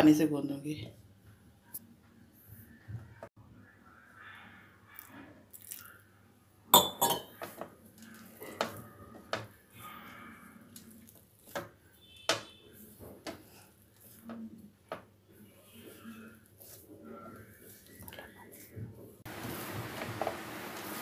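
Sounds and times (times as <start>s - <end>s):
clinks against glass bowl: 6.8s - 7.4s
hands rubbing and crumbling dough: 12.7s - 19.7s.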